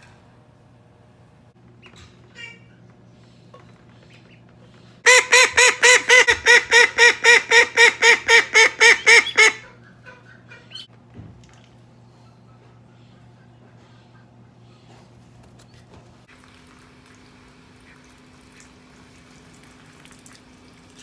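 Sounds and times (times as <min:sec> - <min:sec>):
duck quacking rapidly: 0:05.1 - 0:10.8.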